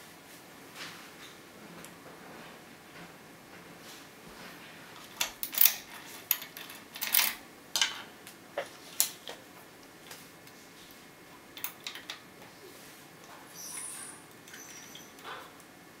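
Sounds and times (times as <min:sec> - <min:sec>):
lock picking tools clicking: 0:05.2 - 0:07.4.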